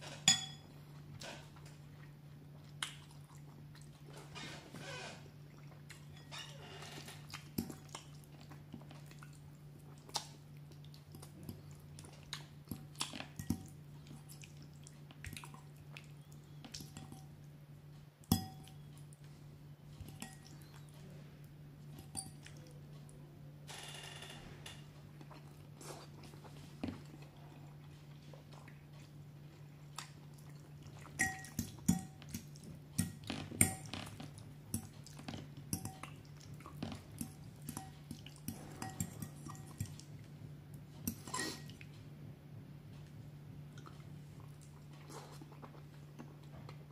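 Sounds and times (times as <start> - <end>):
low steady hum: 0.0 - 46.9
fork clinking on ceramic bowl: 0.2 - 0.7, 18.3 - 18.8, 31.2 - 32.4, 33.0 - 34.0, 35.7 - 36.1, 38.5 - 40.0
chewing: 1.0 - 4.4, 5.5 - 17.4, 18.4 - 23.2, 25.0 - 42.0, 42.9 - 46.9.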